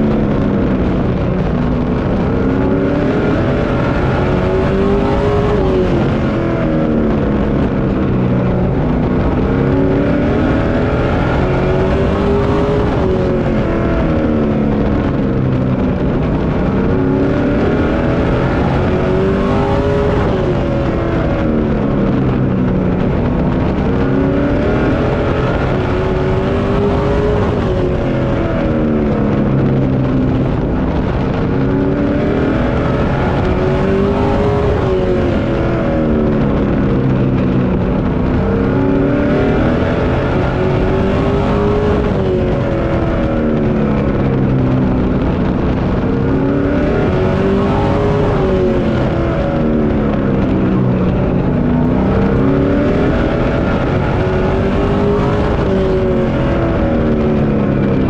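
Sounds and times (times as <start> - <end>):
race car engine accelerating: 0.0 - 58.0.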